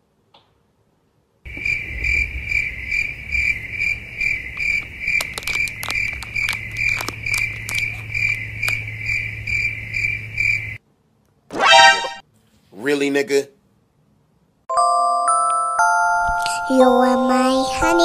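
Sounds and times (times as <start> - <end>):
high cricket-like chirp: 1.5 - 10.8
plastic snack packet crinkling: 4.6 - 8.9.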